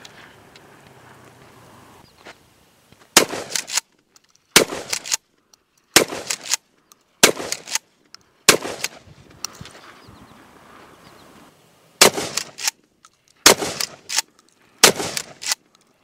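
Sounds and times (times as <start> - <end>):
shotgun shots: 3.2 - 3.8, 4.6 - 5.2, 6.0 - 6.6, 7.2 - 7.8, 8.5 - 9.0, 12.0 - 12.8, 13.4 - 14.2, 14.8 - 15.6
shotgun pump clatter: 3.4 - 7.9, 12.2 - 16.0.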